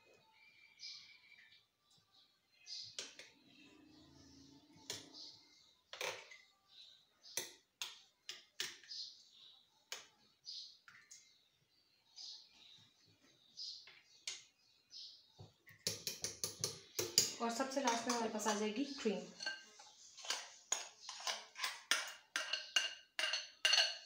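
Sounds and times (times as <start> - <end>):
spoon clinking on glass: 15.9 - 18.6, 19.2 - 24.0.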